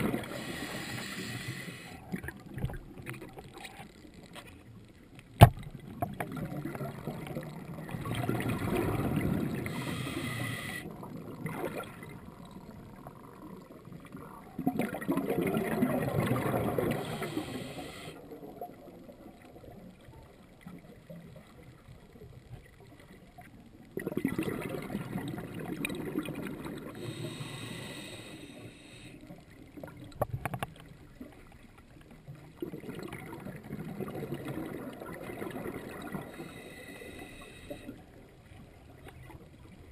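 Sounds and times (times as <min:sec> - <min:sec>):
diver inhaling through regulator: 0:00.1 - 0:02.1, 0:09.5 - 0:11.0, 0:16.7 - 0:18.2, 0:26.9 - 0:29.2, 0:36.2 - 0:38.0.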